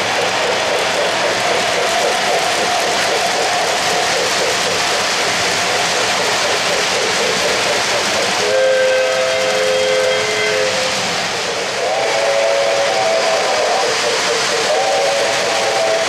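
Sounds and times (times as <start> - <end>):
model trains running: 0.0 - 16.0
model train steam whistle: 8.3 - 16.0.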